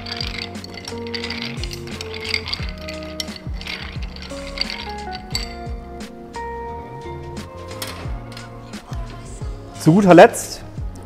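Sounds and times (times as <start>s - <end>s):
ice clinking against glass: 0.0s - 5.8s
background music with beat: 0.0s - 11.0s.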